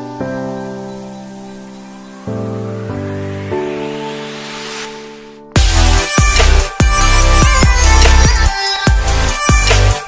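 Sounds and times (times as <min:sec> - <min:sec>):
electronic dance music: 0:02.9 - 0:10.0.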